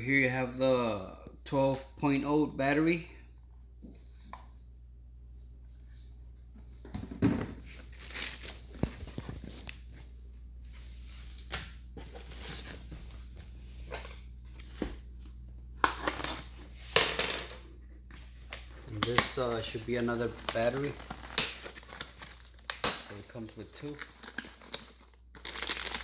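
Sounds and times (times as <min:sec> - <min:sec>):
packaging crinkling and rustling: 0:07.7 - 0:09.8, 0:18.4 - 0:26.0.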